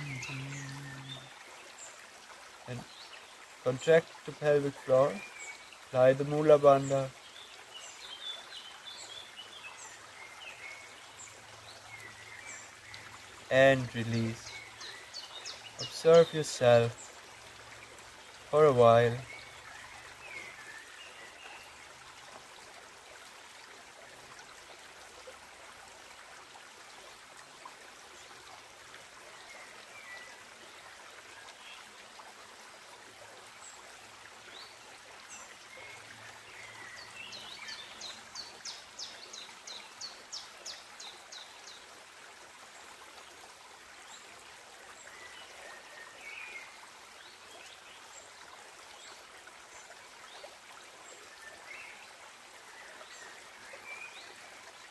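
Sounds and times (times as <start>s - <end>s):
birds chirping: 0.0s - 1.4s, 4.4s - 17.1s
creek babbling over rocks: 0.0s - 54.9s.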